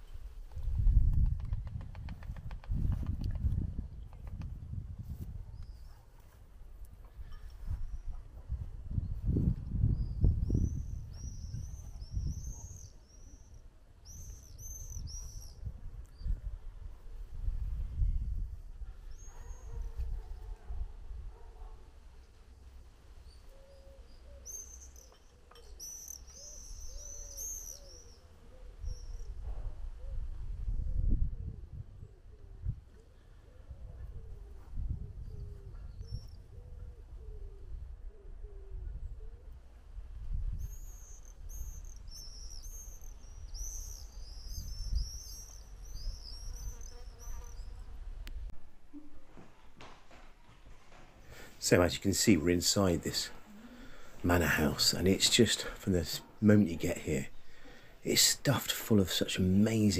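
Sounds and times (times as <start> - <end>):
small bird chirping: 9.9 - 16.4, 23.2 - 29.4, 40.5 - 47.9
bird cooing: 23.4 - 29.4, 31.4 - 39.6.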